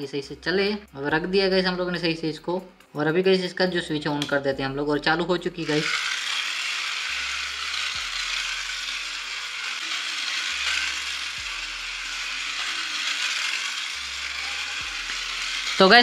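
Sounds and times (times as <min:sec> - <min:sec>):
toy train motor whirring: 0:05.5 - 0:16.0.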